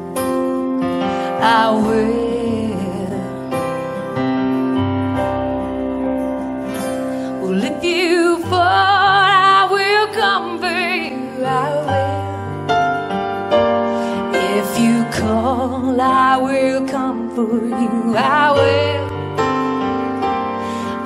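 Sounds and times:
acoustic guitar: 0:00.0 - 0:21.0
keyboard chords: 0:00.0 - 0:21.0
woman singing with vibrato: 0:01.2 - 0:03.6, 0:07.3 - 0:12.5, 0:14.3 - 0:19.2.

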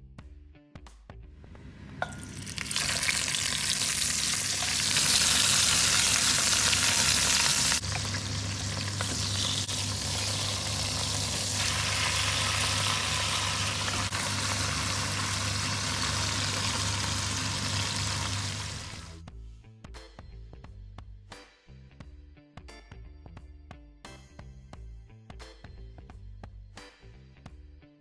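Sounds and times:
meat sizzling in a pot: 0:02.2 - 0:19.2.

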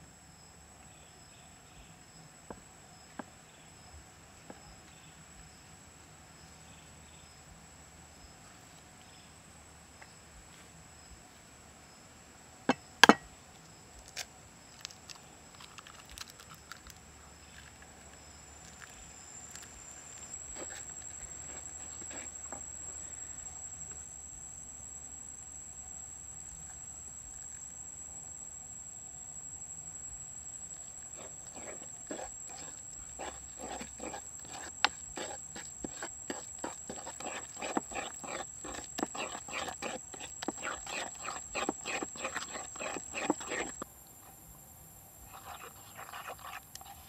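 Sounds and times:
high insect whine: 0:14.5 - 0:47.0
wooden spoon scraping bowl: 0:18.7 - 0:22.8, 0:30.8 - 0:43.9, 0:45.3 - 0:47.0.

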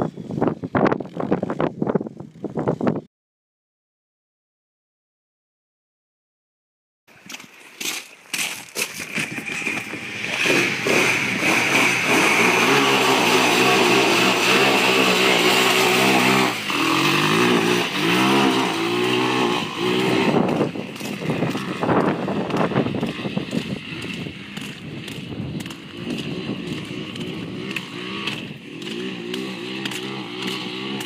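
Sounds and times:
atv engine revving: 0:09.2 - 0:31.0.

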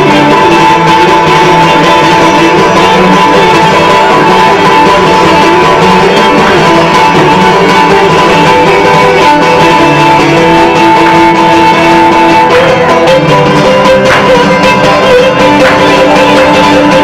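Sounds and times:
plucked string instruments strumming: 0:00.0 - 0:17.0
sustained melody line: 0:00.0 - 0:17.0.

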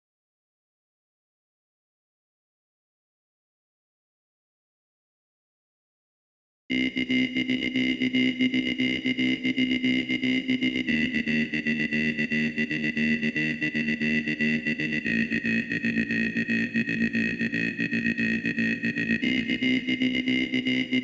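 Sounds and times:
synthesizer pulsing held notes: 0:06.7 - 0:21.0.

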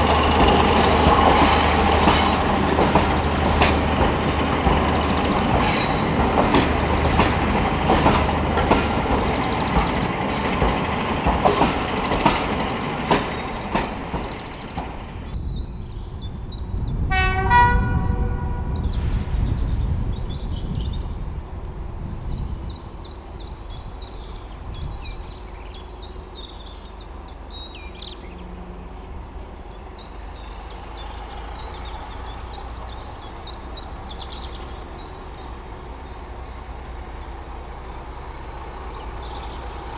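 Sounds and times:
train wheels clicking over rail joints: 0:00.0 - 0:15.4
locomotive engine rumble: 0:00.0 - 0:39.9
train horn blast: 0:17.1 - 0:19.0, 0:27.7 - 0:29.9.

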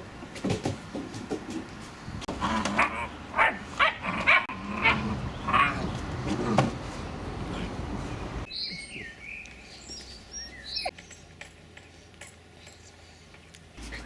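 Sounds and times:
puppies playing and scuffling: 0:05.8 - 0:14.0
small birds chirping: 0:07.5 - 0:14.0.

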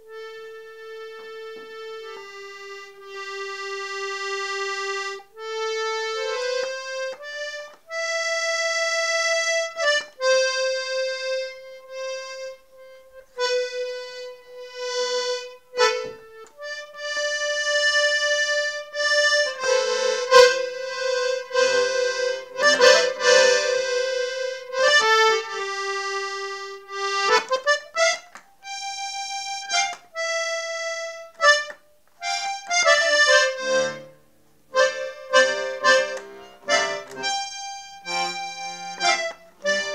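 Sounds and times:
solo accordion melody: 0:00.0 - 0:39.9.

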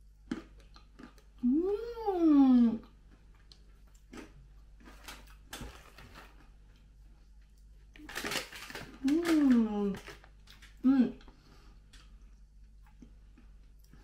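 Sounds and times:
soft chewing clicks: 0:00.0 - 0:01.5, 0:02.8 - 0:04.7, 0:10.2 - 0:14.0
woman humming mmm: 0:01.4 - 0:02.9
plastic snack packet rustling: 0:08.0 - 0:10.8.

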